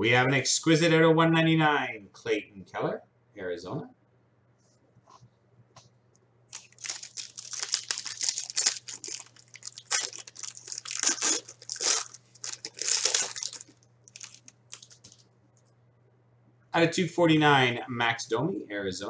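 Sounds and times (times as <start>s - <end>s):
packaging crinkling: 6.5s - 15.3s.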